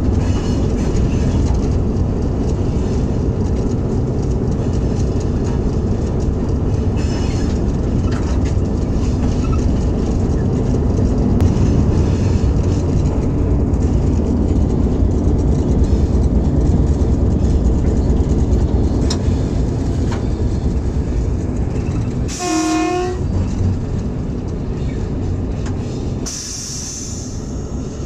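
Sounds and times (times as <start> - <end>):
locomotive engine rumbling: 0.0 - 28.0
locomotive horn blast: 22.3 - 23.4.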